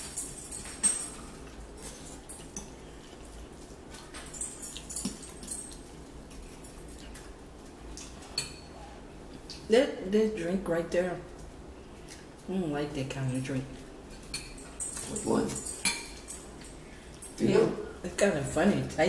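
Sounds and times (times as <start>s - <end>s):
chewing: 1.1s - 9.7s
fork clinking against ceramic bowl: 14.2s - 17.4s.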